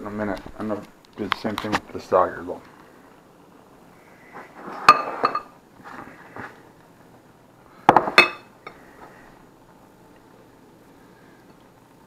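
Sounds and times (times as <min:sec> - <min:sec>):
plates and fork clinking: 0:04.8 - 0:05.6, 0:07.9 - 0:08.5.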